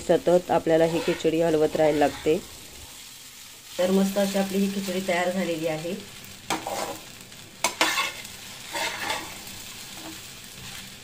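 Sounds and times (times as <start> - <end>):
faint frying sizzle: 0.0 - 11.0
metal spatula scraping pan: 0.7 - 2.4, 6.5 - 10.9.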